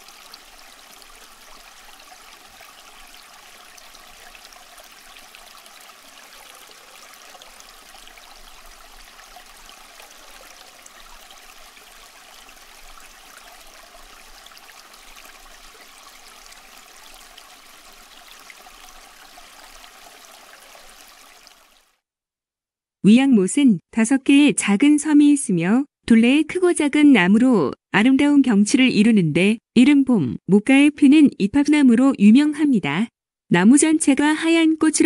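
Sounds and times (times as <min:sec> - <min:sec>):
stream rushing and babbling: 0:00.0 - 0:21.9.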